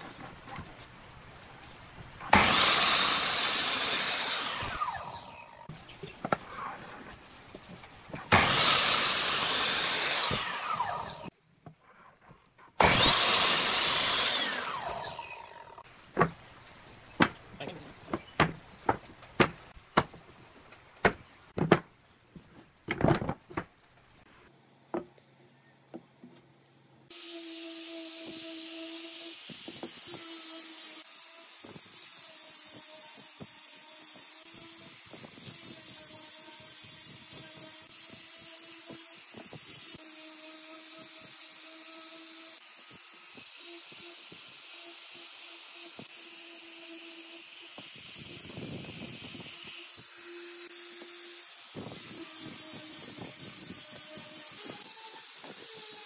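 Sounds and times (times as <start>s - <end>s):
angle grinder sanding wood: 2.1s - 5.7s, 8.1s - 11.3s, 12.8s - 15.8s, 27.1s - 56.0s.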